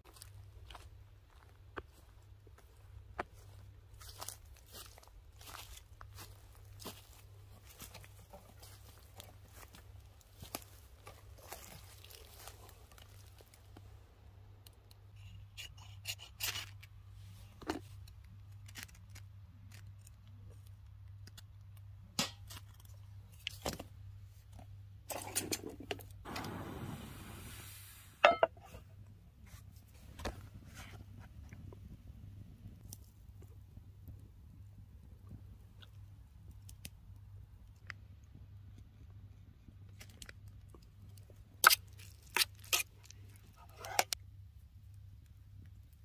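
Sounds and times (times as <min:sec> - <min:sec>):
hiss: 0:26.3 - 0:28.2
camp gear clinks and scrapes: 0:41.9 - 0:44.2.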